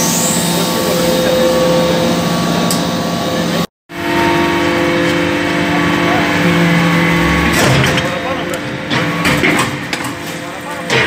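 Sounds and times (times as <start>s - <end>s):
hydraulic press humming: 0.0s - 11.0s.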